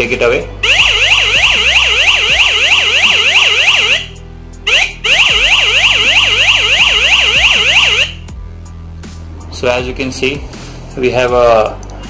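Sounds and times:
electronic warbling siren: 0.6 - 8.2.

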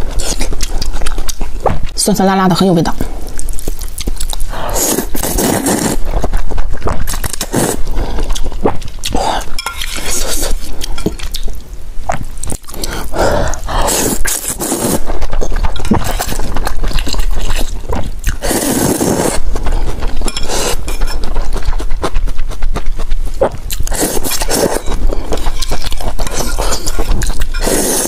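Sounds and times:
wet chewing: 0.0 - 2.0, 3.1 - 28.0
slurping noodles: 4.6 - 10.6, 12.8 - 21.0, 23.4 - 28.0.

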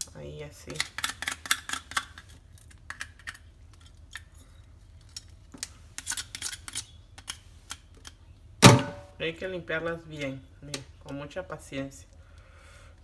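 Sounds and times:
crab shell clicking and scratching: 0.7 - 4.3, 6.0 - 8.2.

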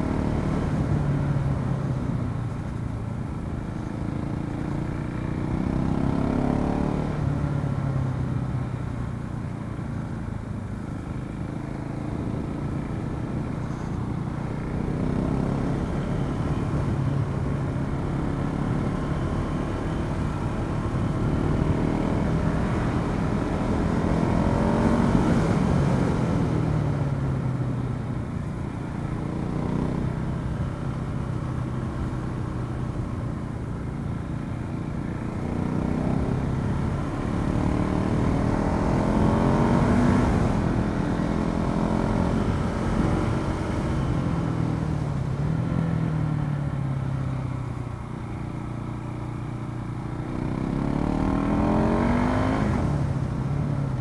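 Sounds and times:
motorcycle engine revving: 3.5 - 7.8, 11.2 - 27.6, 28.8 - 33.2, 34.8 - 47.0, 49.4 - 54.0.

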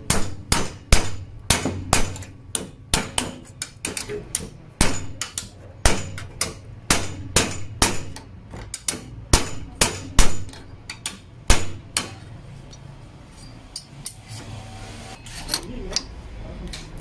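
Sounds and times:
hammer striking steel bar: 0.0 - 12.3.

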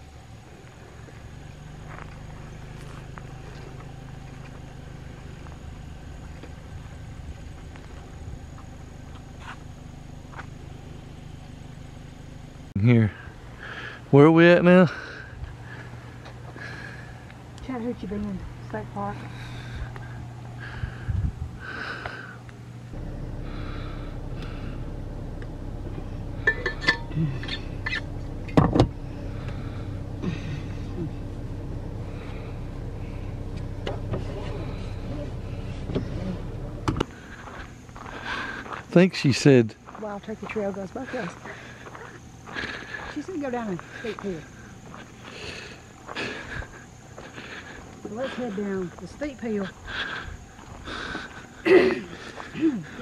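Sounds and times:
car interior hum: 0.0 - 13.6, 15.0 - 50.8
steady low rumble: 15.4 - 39.0.

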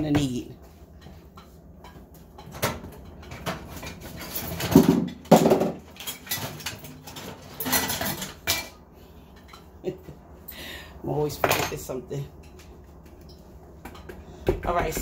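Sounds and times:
clicks and knocks of objects moved: 1.0 - 9.8.

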